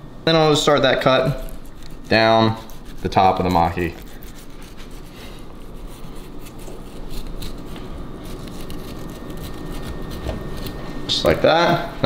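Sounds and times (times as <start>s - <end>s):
knife scraping through fish skin: 1.4s - 11.0s.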